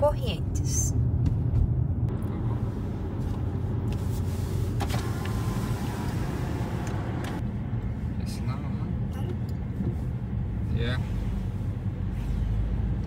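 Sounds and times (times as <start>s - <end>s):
engine and tyre rumble: 0.0s - 13.0s.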